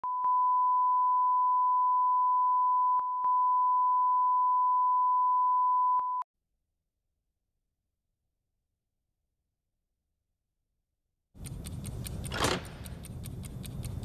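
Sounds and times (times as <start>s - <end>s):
clicks: 11.4s - 14.0s.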